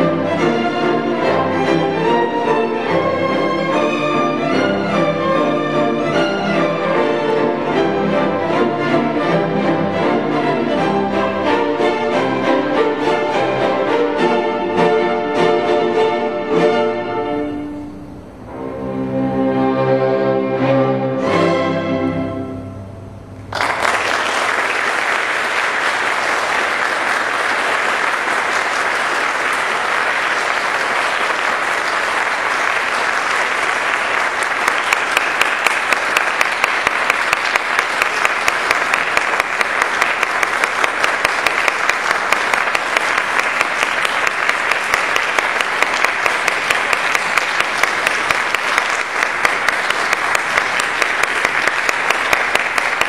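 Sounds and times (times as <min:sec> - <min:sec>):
audience applauding: 0:23.5 - 0:53.0.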